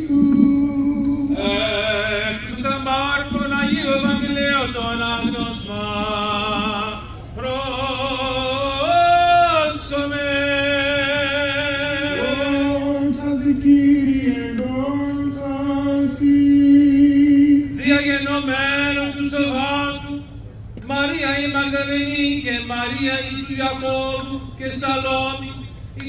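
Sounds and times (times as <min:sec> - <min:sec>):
voices singing a slow chant: 0:00.0 - 0:18.2.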